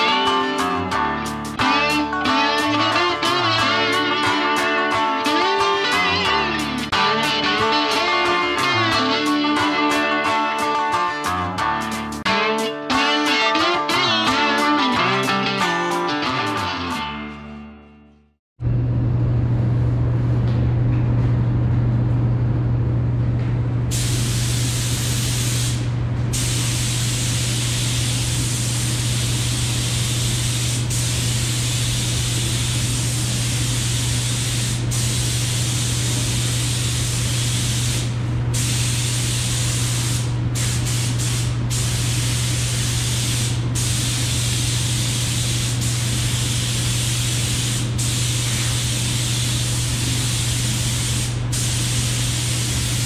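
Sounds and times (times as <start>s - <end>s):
paint spray gun hissing: 23.9s - 53.0s.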